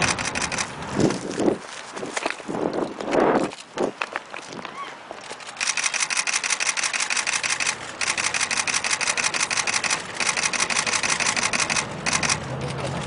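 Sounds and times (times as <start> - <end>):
camera shutters clicking: 0.0 - 1.2, 5.2 - 12.8.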